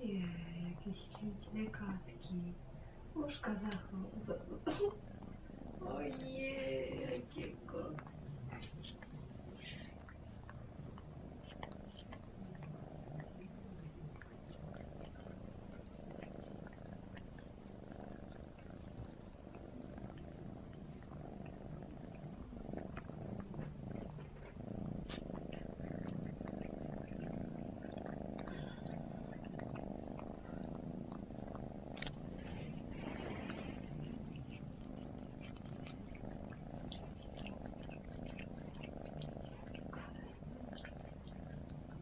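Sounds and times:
cat purring: 0:00.0 - 0:42.0
tongue-licking clicks: 0:03.6 - 0:03.9, 0:31.6 - 0:32.2.

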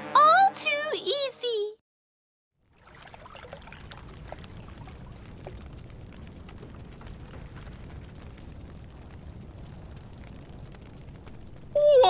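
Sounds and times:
small water plops: 0:02.6 - 0:09.1
water trickling and lapping: 0:02.6 - 0:09.1
low steady rumble: 0:03.2 - 0:12.0.

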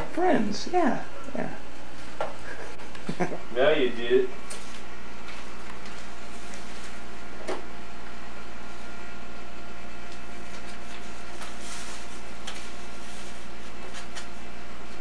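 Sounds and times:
tape hum and hiss: 0:00.0 - 0:15.0
soft rustle: 0:10.5 - 0:14.3.

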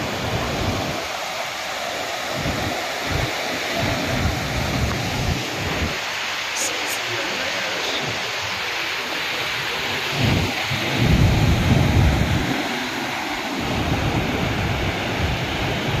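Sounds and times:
flood water rushing with debris: 0:00.0 - 0:16.0.

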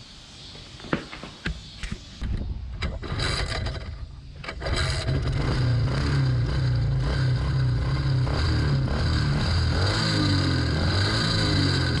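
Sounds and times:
small engine running: 0:02.8 - 0:12.0.

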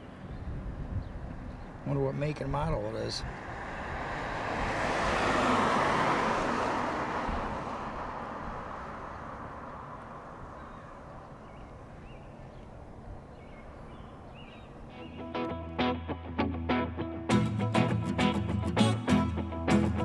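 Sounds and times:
faint traffic hum: 0:00.0 - 0:15.2
vehicle driving past: 0:03.3 - 0:10.5.

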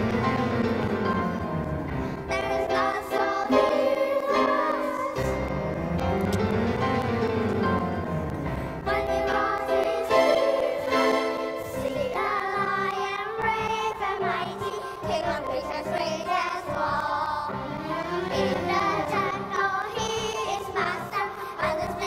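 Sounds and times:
backing music: 0:00.0 - 0:22.0
children's chorus singing: 0:02.3 - 0:05.5, 0:08.8 - 0:22.0.

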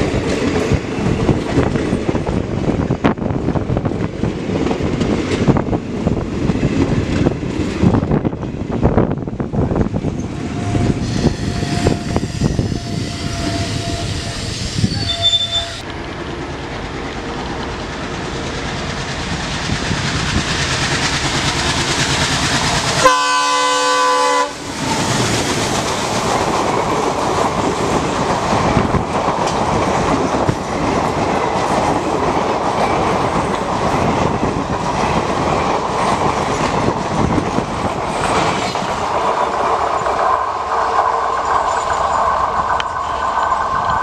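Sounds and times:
diesel locomotive running: 0:00.0 - 0:44.0
train horn blast: 0:10.4 - 0:15.9, 0:23.0 - 0:25.2
coaches clattering over rail joints: 0:24.8 - 0:44.0.

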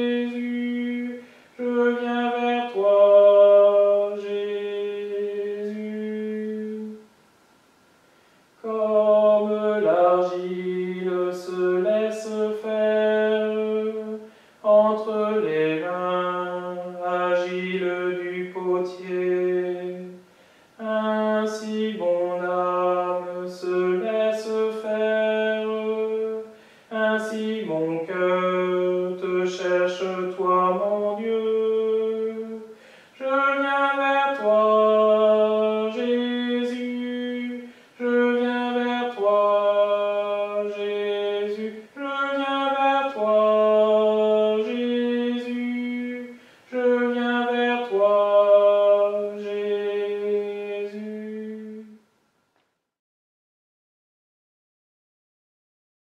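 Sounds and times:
man singing a hymn: 0:00.0 - 0:07.1, 0:08.6 - 0:52.0
singer breathing: 0:01.2 - 0:01.6, 0:08.0 - 0:08.6, 0:14.2 - 0:14.6, 0:20.2 - 0:20.8, 0:26.5 - 0:26.9, 0:32.7 - 0:33.2, 0:37.6 - 0:38.0, 0:46.3 - 0:46.7.

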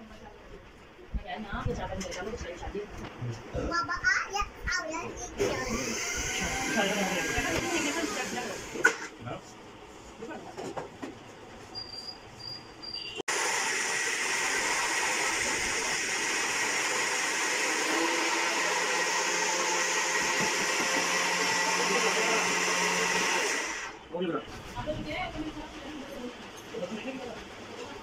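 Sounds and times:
electric blender whining: 0:05.4 - 0:09.1, 0:13.3 - 0:24.0.

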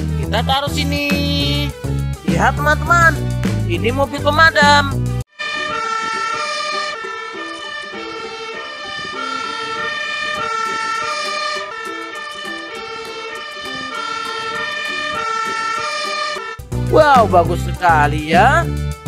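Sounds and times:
fire engine two-tone siren: 0:05.3 - 0:16.6.

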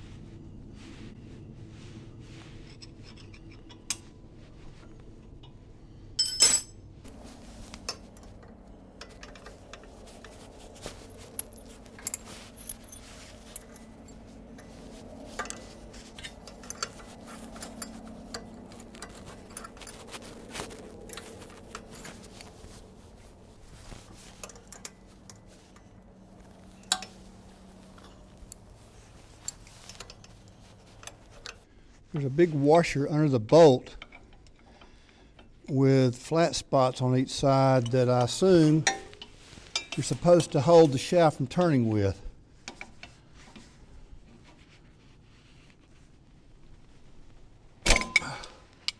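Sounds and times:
faint low hum: 0:00.0 - 0:48.9
metal tools clinking: 0:06.2 - 0:06.8, 0:07.8 - 0:23.0, 0:23.9 - 0:26.0, 0:26.6 - 0:31.6, 0:47.9 - 0:48.9
sharp metal clank: 0:47.8 - 0:48.4.

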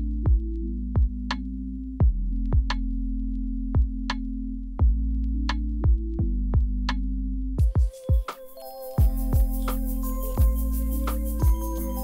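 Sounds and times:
deep kick drums: 0:00.0 - 0:01.4, 0:02.0 - 0:02.9, 0:03.8 - 0:04.2, 0:04.8 - 0:07.0, 0:07.6 - 0:08.3, 0:09.0 - 0:09.7, 0:10.4 - 0:10.7, 0:11.4 - 0:11.8
electronic music with drum machine: 0:00.0 - 0:12.0
held synth bass: 0:09.0 - 0:12.0.

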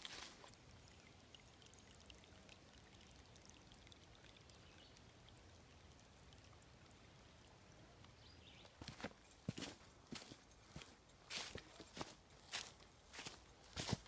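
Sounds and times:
stream trickling over rocks: 0:00.0 - 0:14.0.

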